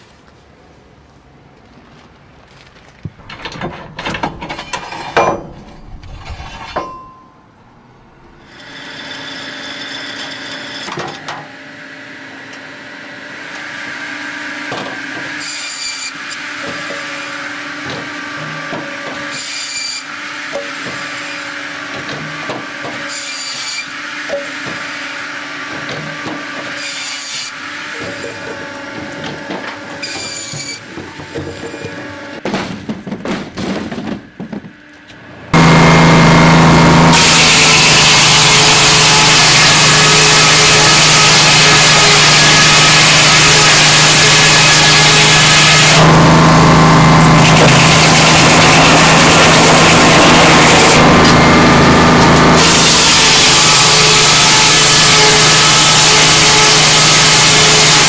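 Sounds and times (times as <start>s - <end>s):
wood knocking against metal: 3.1s - 5.8s
machine hum: 27.6s - 58.0s.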